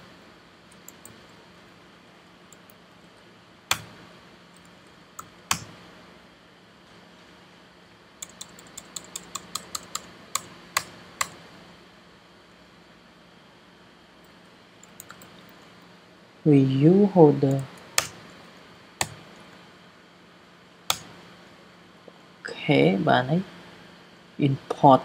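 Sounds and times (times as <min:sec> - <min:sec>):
keyboard keystrokes: 0:00.7 - 0:01.2, 0:08.2 - 0:11.4, 0:14.8 - 0:15.6.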